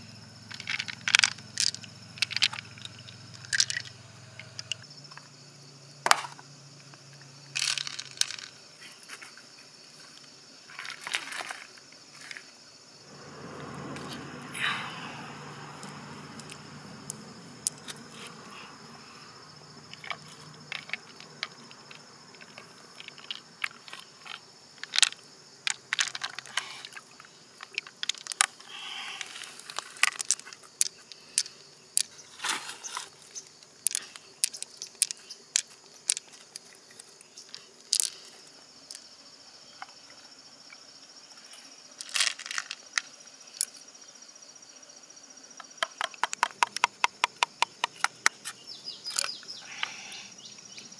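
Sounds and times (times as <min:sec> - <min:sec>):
high insect drone: 0:00.0 - 0:50.9
pearls clicking against shell: 0:00.5 - 0:04.8, 0:07.6 - 0:08.6, 0:33.8 - 0:36.8, 0:45.8 - 0:48.5, 0:49.1 - 0:50.0.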